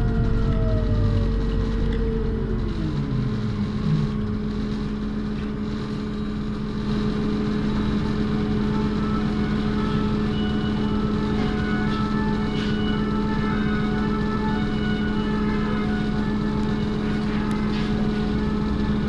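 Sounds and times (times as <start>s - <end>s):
bus engine humming: 0.0s - 19.0s.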